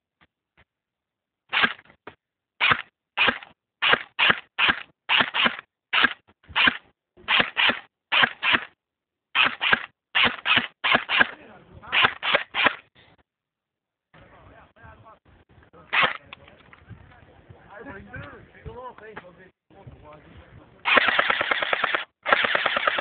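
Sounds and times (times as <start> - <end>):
airsoft gun shots: 1.5 - 1.8, 2.6 - 8.7, 9.4 - 12.8, 15.9 - 16.2, 20.9 - 23.0.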